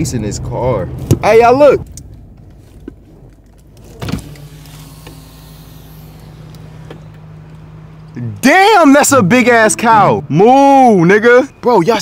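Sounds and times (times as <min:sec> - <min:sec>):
low rumble of car: 0:00.0 - 0:12.0
power window motor humming: 0:03.6 - 0:08.2.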